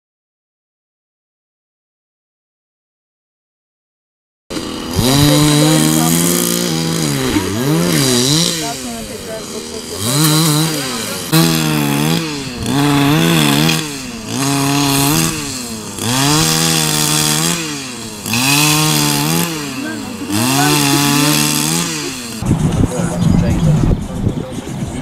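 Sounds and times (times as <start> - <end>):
chainsaw engine revving: 4.5 - 23.0.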